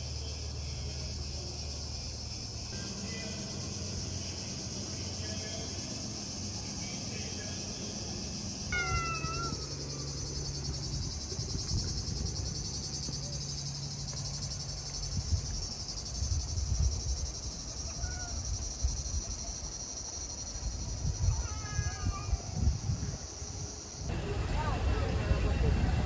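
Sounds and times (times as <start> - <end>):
cicadas buzzing: 0.0 - 25.9
short falling call: 8.7 - 9.7.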